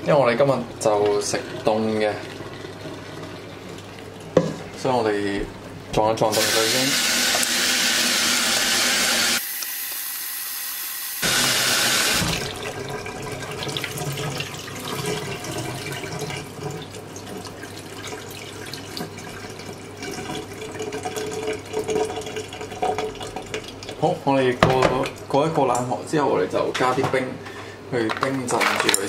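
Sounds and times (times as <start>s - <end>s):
tap water running into colander: 6.2s - 25.2s.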